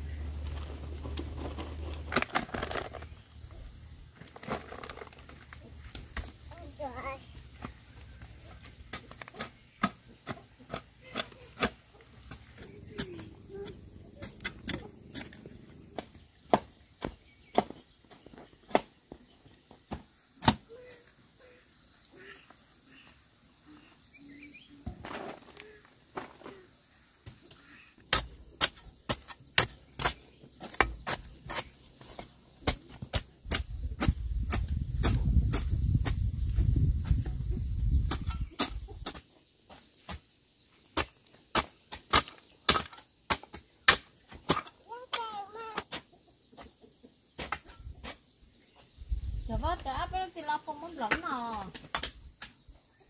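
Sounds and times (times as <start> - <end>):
crickets chirping: 0.0 - 53.0
insect buzz: 0.0 - 53.0
hand tool chopping: 28.1 - 36.2.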